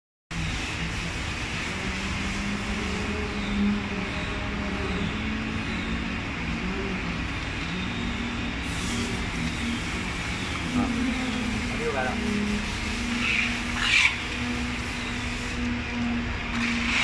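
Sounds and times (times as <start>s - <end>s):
low mechanical hum: 0.3s - 17.0s
sandpaper scratching on ceramic: 8.6s - 15.6s.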